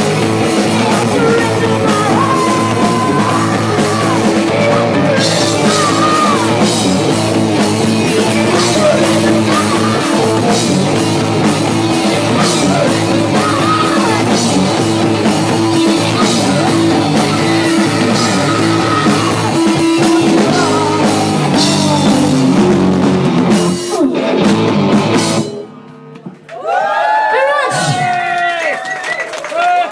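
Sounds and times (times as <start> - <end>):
electric guitar: 0.0 - 26.4
drum kit: 0.0 - 26.5
person singing: 0.7 - 7.1, 7.8 - 24.2.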